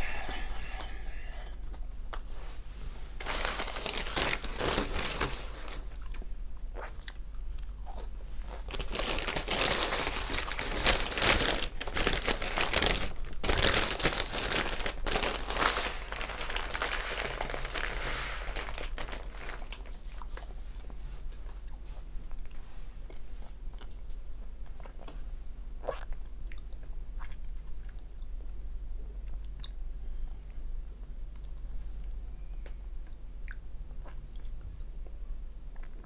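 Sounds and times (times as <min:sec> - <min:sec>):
paper bag crumpling: 0:03.2 - 0:06.0, 0:08.4 - 0:19.9.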